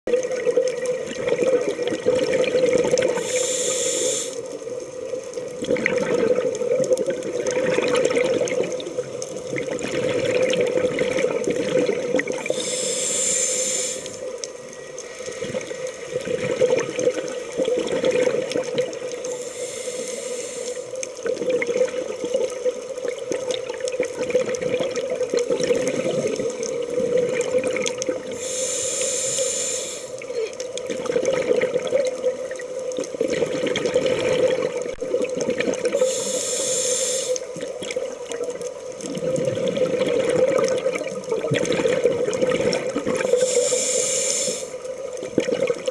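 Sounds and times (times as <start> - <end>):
regulator hissing inhalations: 3.2 - 4.5, 12.4 - 14.3, 19.2 - 21.0, 28.3 - 30.2, 36.0 - 37.6, 43.3 - 44.8
steady hum: 3.2 - 4.5, 12.4 - 16.2, 19.2 - 21.0, 28.4 - 30.2
bubbling exhalations: 5.6 - 14.2, 15.4 - 22.5, 23.7 - 28.8, 29.9 - 32.3, 33.1 - 36.5, 39.0 - 45.9.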